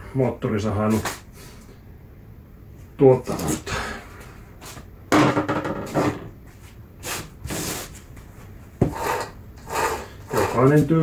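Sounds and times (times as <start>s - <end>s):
file scraping chainsaw chain: 9.0s - 10.9s.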